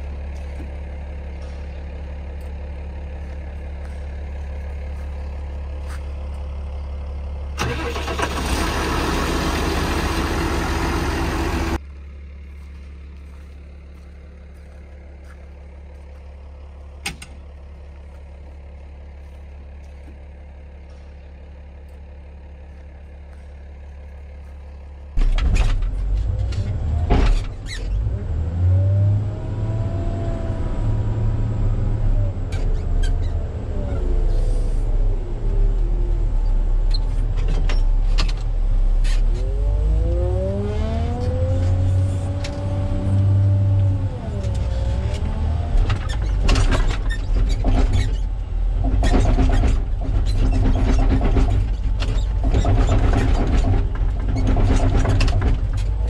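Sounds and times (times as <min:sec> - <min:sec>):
diesel engine revving: 0:00.0 - 0:11.8, 0:12.5 - 0:56.0
low engine hum: 0:00.0 - 0:56.0.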